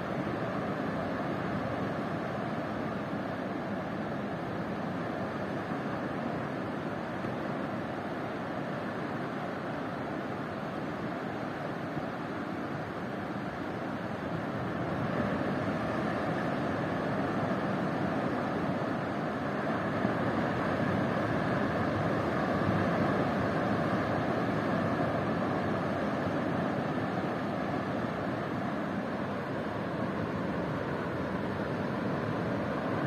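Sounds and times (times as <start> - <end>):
ocean surf breaking: 13.4 - 33.0.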